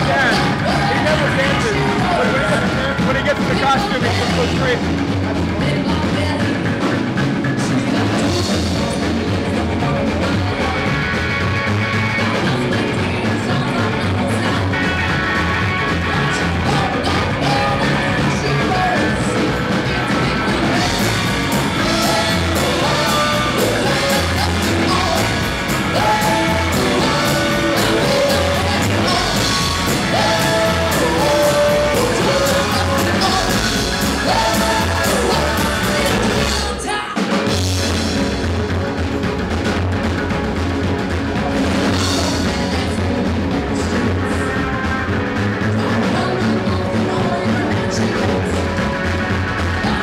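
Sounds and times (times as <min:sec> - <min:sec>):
man singing: 0:00.0 - 0:04.8, 0:05.5 - 0:11.5, 0:12.2 - 0:37.6
drums: 0:00.0 - 0:50.0
electric guitar: 0:00.0 - 0:50.0.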